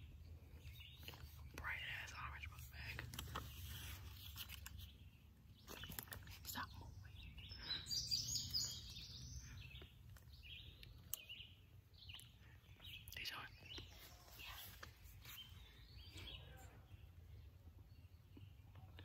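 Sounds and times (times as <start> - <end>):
faint rustles and crackles: 0.5 - 7.1, 12.8 - 16.3
bird chirps: 3.5 - 19.0.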